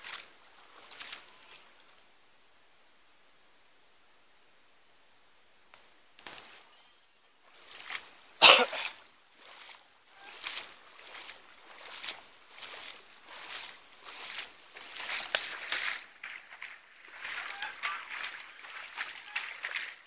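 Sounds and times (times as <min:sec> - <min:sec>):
footsteps wading through water: 0:00.0 - 0:01.9, 0:07.4 - 0:20.0
loud water splash burst: 0:08.4 - 0:09.0.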